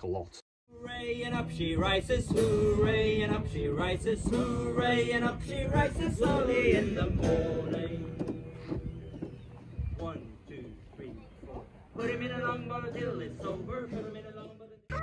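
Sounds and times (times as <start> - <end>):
man singing: 0.7 - 8.5, 11.9 - 15.0
guitar accompaniment: 0.9 - 10.0, 11.3 - 15.0.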